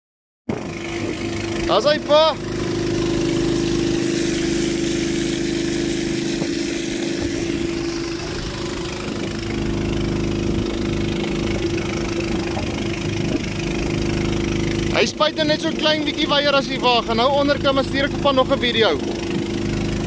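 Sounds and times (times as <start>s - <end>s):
engine humming: 0.5s - 20.0s
water spray hissing: 2.6s - 9.6s.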